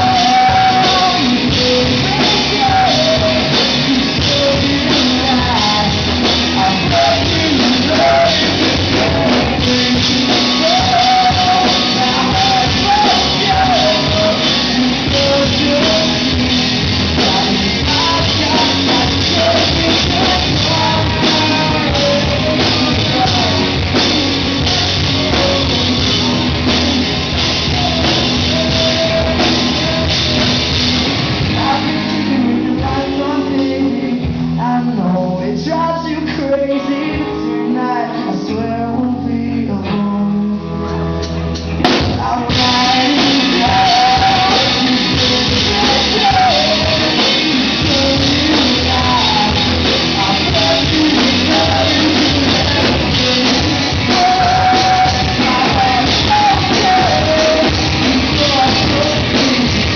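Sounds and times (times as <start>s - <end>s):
man singing into a microphone: 0.0s - 59.9s
rock band playing: 0.0s - 59.9s.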